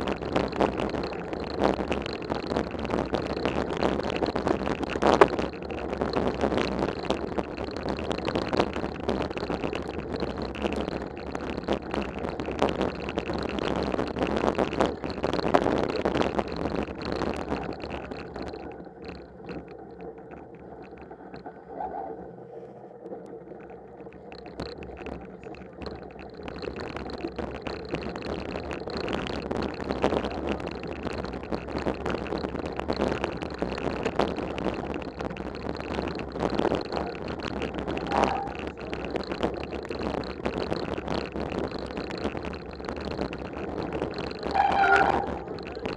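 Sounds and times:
bike rumble and rattle: 0:00.0 - 0:45.9.

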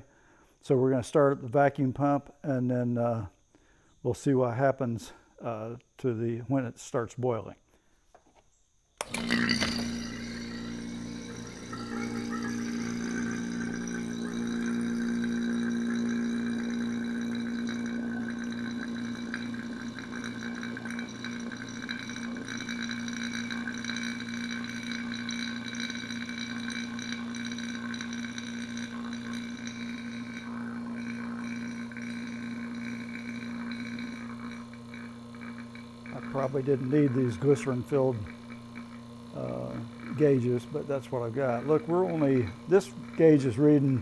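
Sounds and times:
vacuum pump humming: 0:09.0 - 0:44.0.

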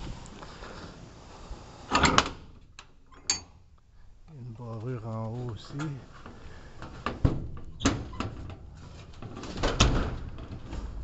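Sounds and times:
metal clicks and knocks of trailer door: 0:09.2 - 0:10.9.

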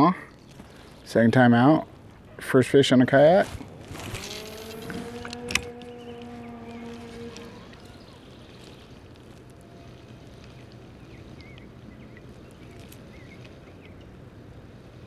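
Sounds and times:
breeze: 0:00.0 - 0:15.0
water wash: 0:06.4 - 0:15.0.

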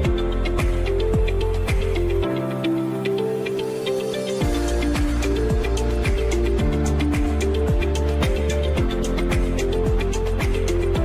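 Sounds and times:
electronic music: 0:00.0 - 0:11.0.

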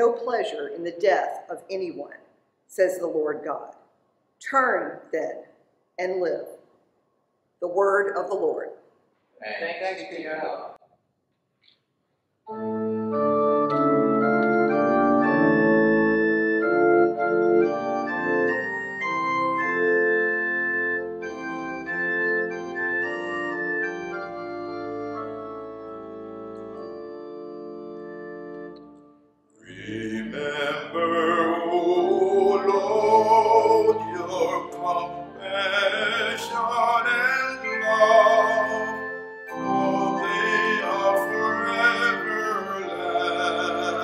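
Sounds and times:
organ playing held chords: 0:12.5 - 0:44.0
man singing: 0:29.6 - 0:44.0.

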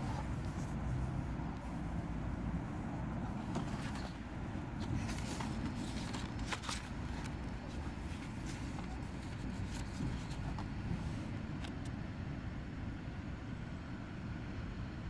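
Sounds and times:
book pages rustling: 0:00.0 - 0:01.9, 0:03.1 - 0:11.8
low background rumble: 0:00.0 - 0:15.0.

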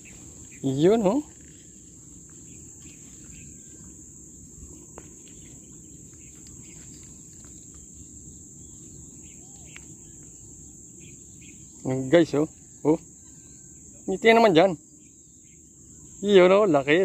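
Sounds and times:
insects chirring: 0:00.0 - 0:17.0
faint ticks: 0:09.7 - 0:10.4.

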